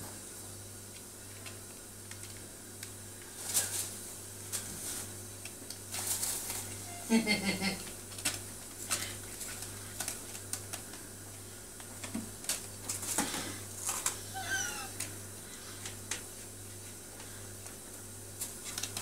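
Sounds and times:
kitten meow: 14.3 - 15.0.

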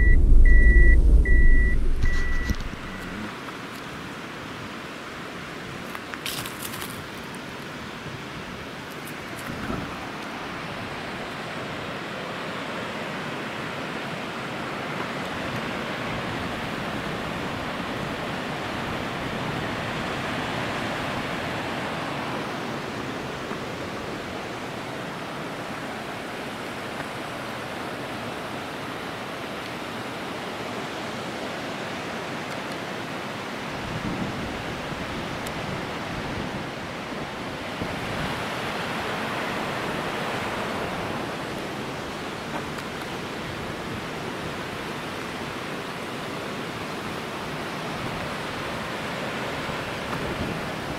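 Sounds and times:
river water rushing over rapids: 2.6 - 50.9.

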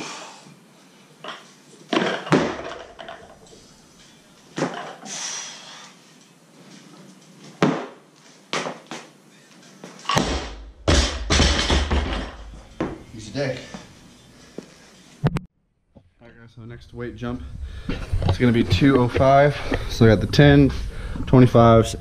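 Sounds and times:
sharp barbell knocks: 10.1 - 12.6.

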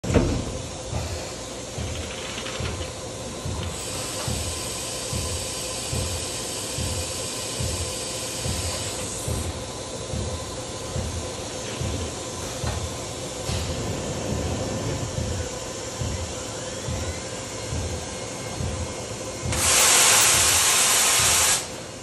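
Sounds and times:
high machine whine: 0.0 - 22.0
machining center hissing: 0.6 - 22.0
low repeating pulse: 2.6 - 19.7.

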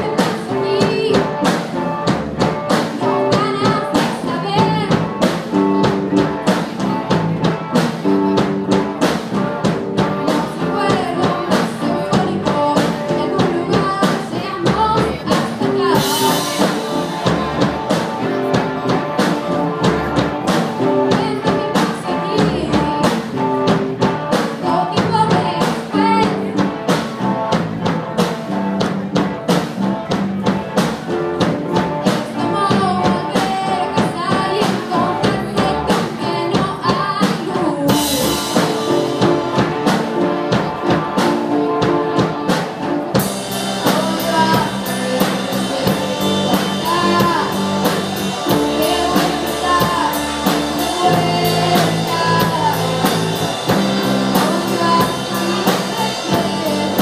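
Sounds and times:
woman singing: 0.0 - 2.1, 2.8 - 6.9, 10.0 - 26.9, 31.8 - 42.5, 43.2 - 57.0
drum kit beat: 0.0 - 57.0
electric guitars: 0.0 - 57.0
keyboard: 0.0 - 57.0.

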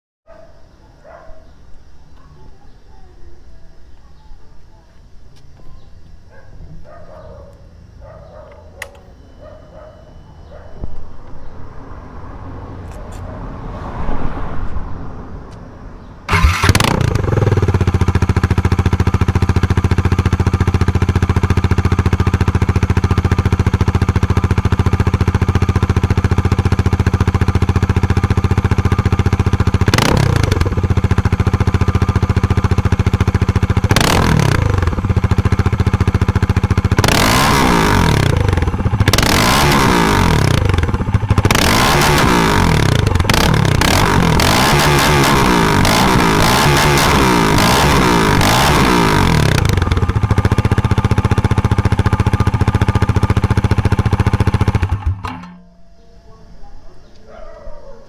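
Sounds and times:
motorcycle engine starting and idling: 5.0 - 57.6
engine revving: 16.2 - 55.5.

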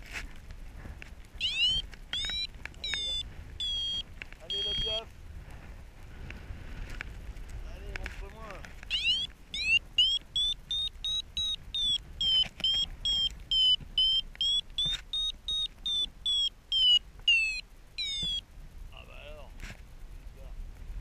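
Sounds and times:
low rush of wind: 0.0 - 14.4, 15.4 - 21.0
variometer short beeps: 1.4 - 5.1, 8.9 - 18.4.

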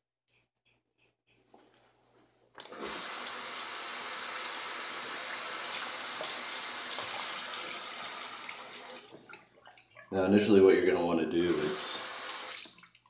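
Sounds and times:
water running into basin: 2.7 - 10.3, 11.4 - 13.0.

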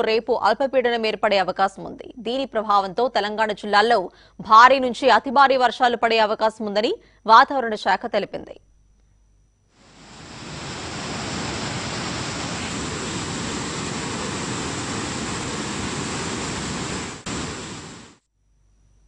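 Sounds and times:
floodwater rushing: 9.8 - 18.2.

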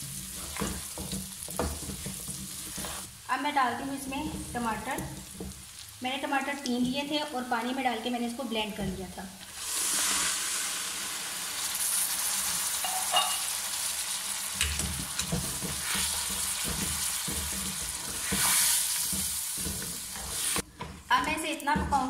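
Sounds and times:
wooden spatula scraping pan: 0.0 - 3.2, 15.0 - 21.2
tomato puree sizzling in oil: 0.0 - 21.2.

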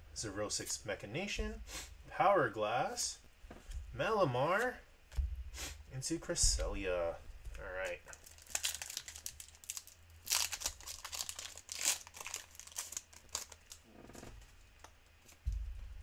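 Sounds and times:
low steady hum: 0.0 - 16.0
foil wrapper crinkling and tearing: 7.6 - 13.9.

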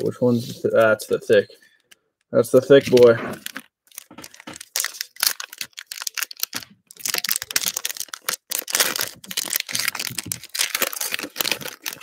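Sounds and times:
foil wrapper crinkling and tearing: 2.8 - 12.0.

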